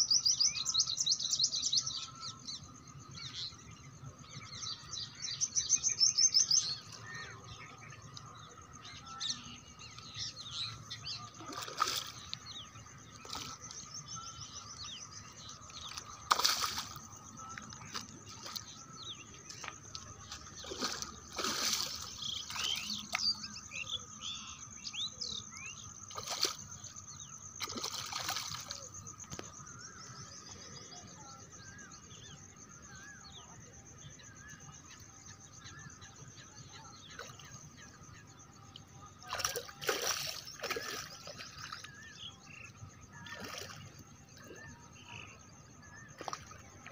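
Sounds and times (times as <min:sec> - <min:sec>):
birds chirping faintly: 0:00.0 - 0:46.9
fish thrashing and splashing: 0:11.3 - 0:13.8, 0:15.6 - 0:23.3, 0:26.0 - 0:26.8, 0:27.6 - 0:29.4, 0:39.2 - 0:41.9, 0:43.2 - 0:44.5, 0:46.1 - 0:46.9.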